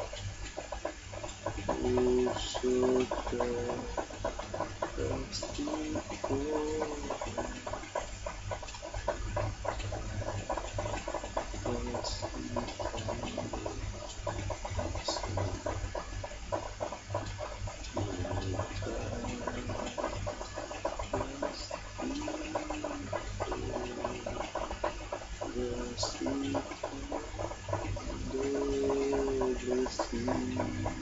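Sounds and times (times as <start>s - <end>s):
crackling rumbling noise: 0.0s - 31.0s
man softly singing: 1.8s - 4.0s, 5.0s - 7.8s, 18.1s - 20.2s, 21.1s - 24.5s, 25.6s - 27.4s, 28.0s - 31.0s.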